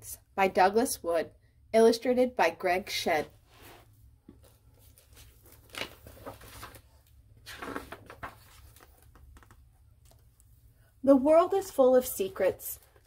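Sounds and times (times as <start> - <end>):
book pages turning: 3.7 - 10.5.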